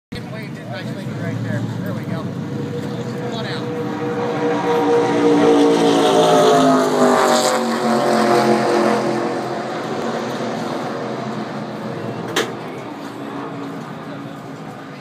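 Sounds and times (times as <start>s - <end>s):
car engine running loud: 0.2s - 15.0s.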